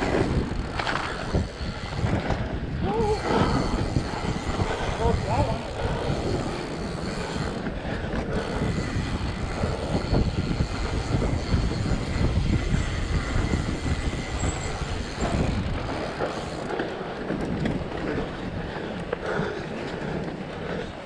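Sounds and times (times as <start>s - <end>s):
bike knocks and rattles: 0.0s - 2.6s
bike tyres rumbling on snow: 0.0s - 21.0s.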